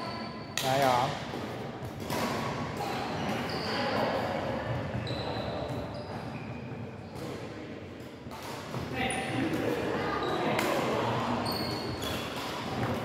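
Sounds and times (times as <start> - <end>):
racket hitting shuttlecock: 1.3 - 2.8
shoes squeaking on wooden court: 1.3 - 7.5, 8.3 - 13.0
voices chattering: 9.0 - 12.0.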